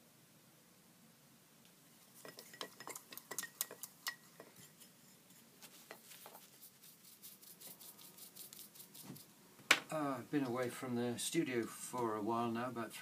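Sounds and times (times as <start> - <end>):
tool clinking in small pot: 2.2 - 4.8.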